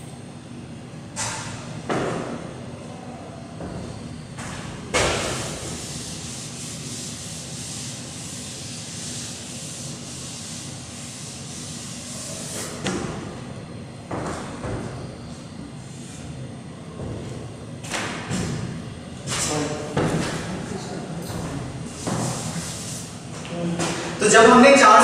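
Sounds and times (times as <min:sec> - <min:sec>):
duster wiping chalkboard: 0:04.4 - 0:12.9, 0:21.3 - 0:23.2.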